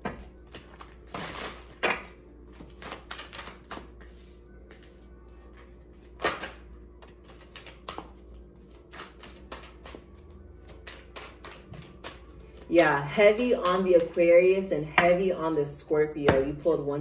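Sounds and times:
cards being shuffled: 0.4 - 5.4, 6.0 - 12.7.

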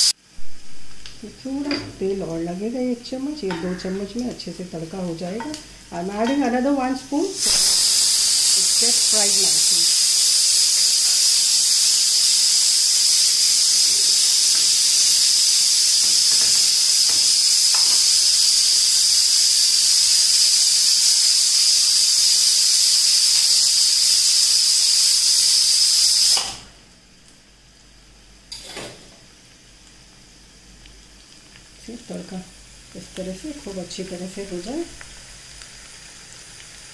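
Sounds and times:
pressure cooker whistling steam: 7.4 - 26.7.

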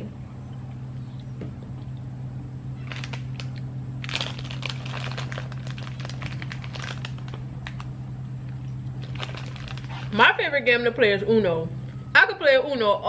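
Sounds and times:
chips being eaten: 2.8 - 10.2
plastic snack bag crinkling: 2.8 - 10.2.

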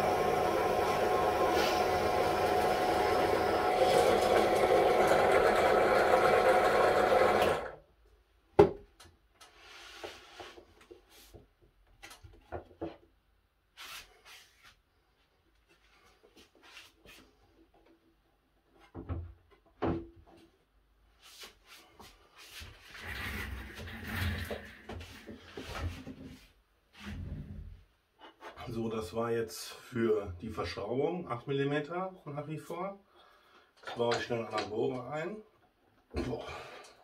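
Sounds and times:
drill press running and winding down: 0.0 - 7.8.

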